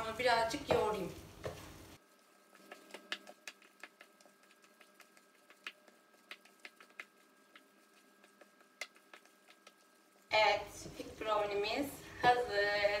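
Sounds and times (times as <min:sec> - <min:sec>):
hands kneading sticky dough: 0:00.6 - 0:09.9.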